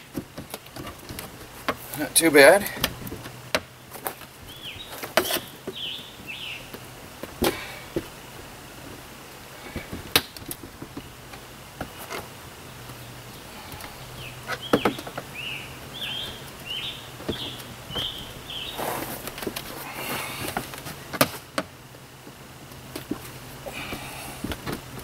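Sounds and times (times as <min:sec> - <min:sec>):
bird chirping: 0:03.7 - 0:06.8, 0:12.6 - 0:19.2.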